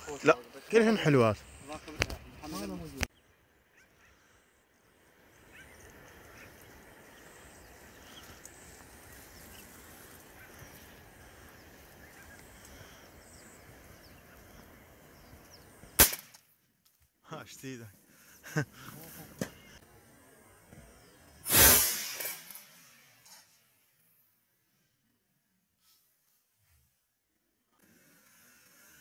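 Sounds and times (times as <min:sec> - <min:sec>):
distant waterbird calls: 0:03.2 - 0:16.0.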